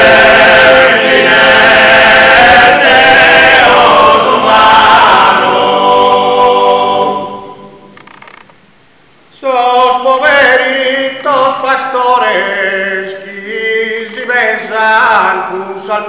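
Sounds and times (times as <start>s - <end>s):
male a cappella singing: 0.0s - 7.8s, 9.3s - 16.0s.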